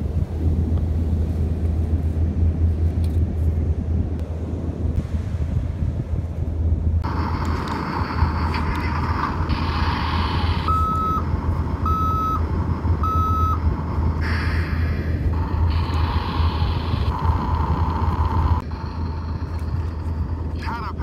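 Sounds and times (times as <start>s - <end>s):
wind rumble on microphone: 0.0s - 21.0s
reversing beeps: 10.6s - 11.2s, 11.8s - 12.4s, 13.0s - 13.6s.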